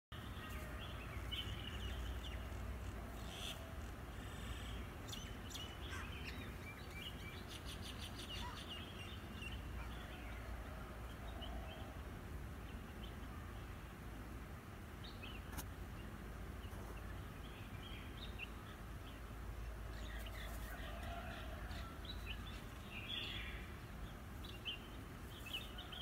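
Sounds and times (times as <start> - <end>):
birds chirping: 0.1 - 12.0.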